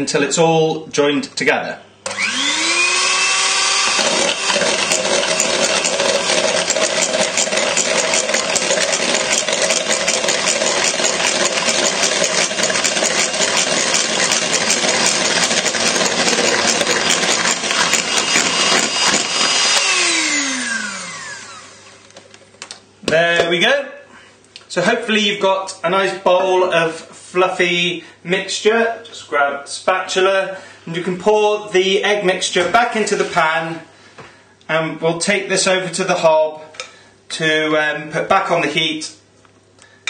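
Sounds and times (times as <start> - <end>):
electric hand mixer whisking: 2.0 - 22.2.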